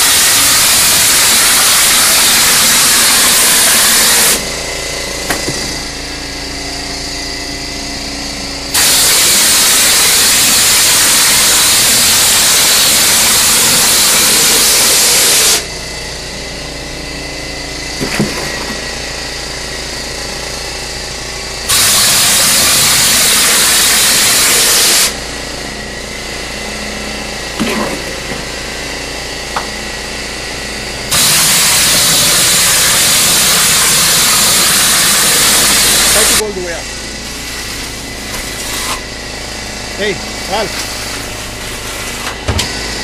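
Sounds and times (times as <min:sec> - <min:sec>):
compressed air spray hiss: 0:00.0 - 0:04.4, 0:08.7 - 0:15.6, 0:21.7 - 0:25.2, 0:31.1 - 0:36.4
air compressor humming: 0:00.0 - 0:43.0
knock: 0:05.3 - 0:05.7.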